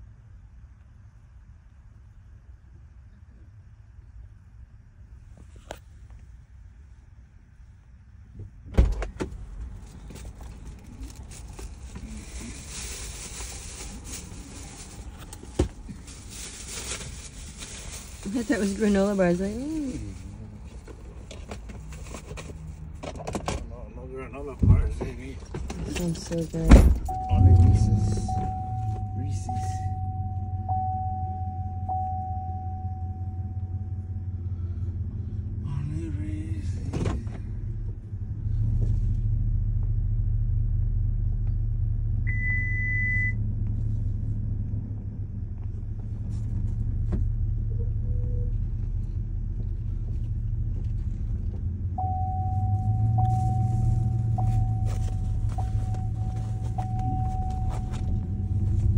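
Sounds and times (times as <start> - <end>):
car cabin rumble: 4.9 - 58.9
short high beep: 27.1 - 34.0, 52.0 - 58.7
thin high pulsing tone: 27.1 - 34.2.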